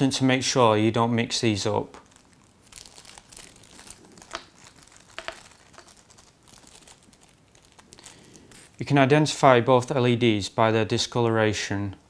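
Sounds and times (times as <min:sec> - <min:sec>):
plastic bag crinkling: 0:01.9 - 0:09.0.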